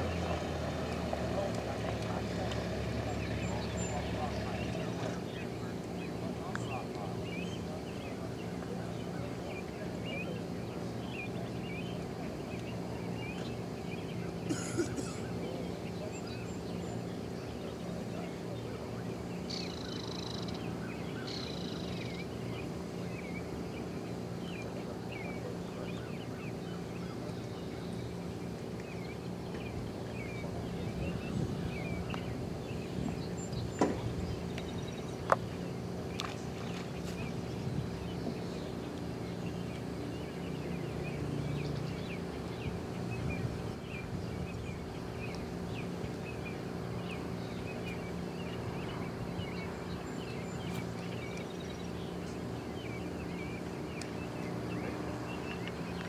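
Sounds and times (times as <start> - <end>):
steady low hum: 0.0 - 56.0
bird chirps: 19.4 - 28.2.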